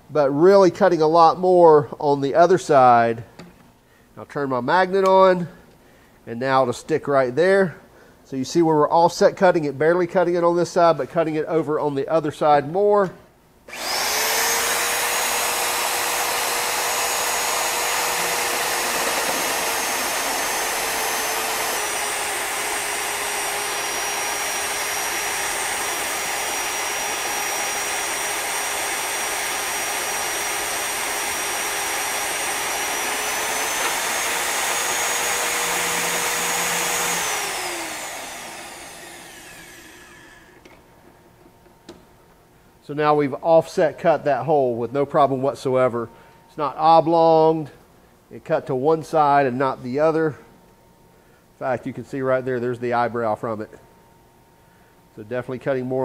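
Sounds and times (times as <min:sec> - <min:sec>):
motor winding down: 0:13.7 - 0:40.6
drill motor whining: 0:13.7 - 0:40.7.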